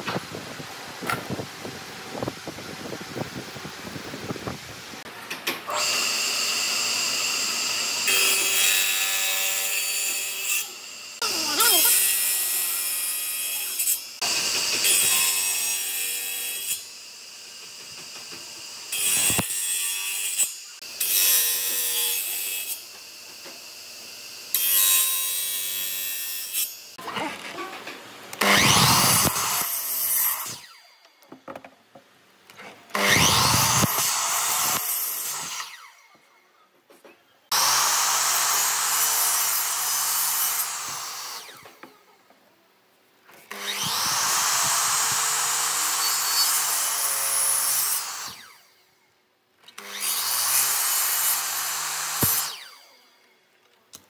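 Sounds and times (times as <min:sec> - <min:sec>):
miter saw cutting wood: 0:05.7 - 0:27.3, 0:28.4 - 0:30.8, 0:32.9 - 0:36.2, 0:37.5 - 0:42.0, 0:43.5 - 0:48.8, 0:49.7 - 0:53.2.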